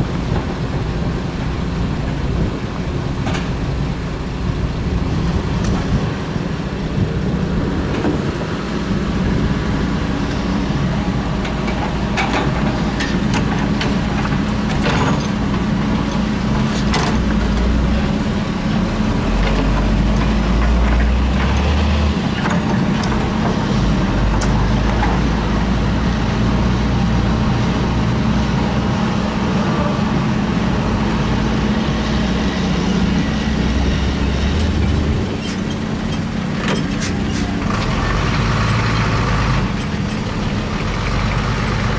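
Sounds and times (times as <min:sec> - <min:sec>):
excavator diesel engine rumbling: 0:00.0 - 0:41.9
metallic clanks and knocks: 0:11.4 - 0:17.7.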